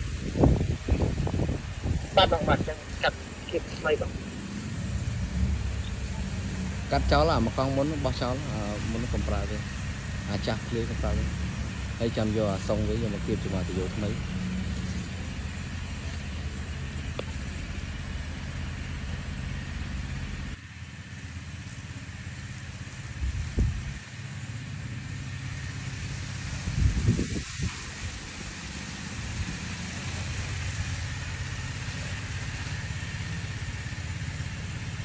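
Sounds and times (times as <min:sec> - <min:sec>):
low rumbles: 0:00.0 - 0:20.6
sprayer pump engine humming: 0:00.0 - 0:35.0.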